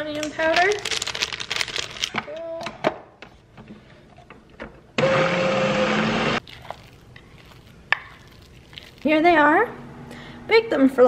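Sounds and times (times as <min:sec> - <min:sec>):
food processor motor running: 0:05.0 - 0:06.4.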